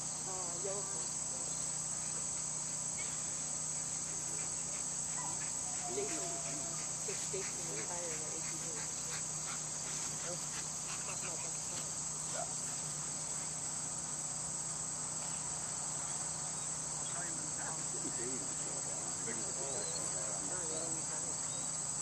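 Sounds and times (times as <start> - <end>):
insects chorus: 0.0 - 22.0
faint distant voices: 17.0 - 21.7.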